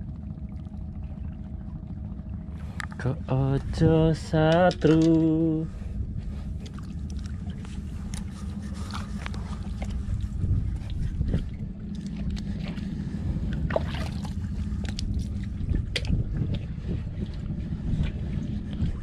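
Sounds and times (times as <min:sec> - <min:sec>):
low rumble: 0:00.0 - 0:19.0
hands splashing water: 0:13.7 - 0:15.0.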